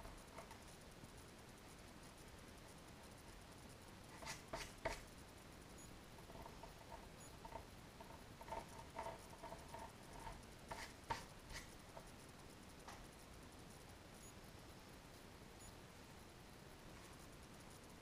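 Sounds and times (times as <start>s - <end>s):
pencil scratching on paper: 4.1s - 5.1s, 8.4s - 11.7s.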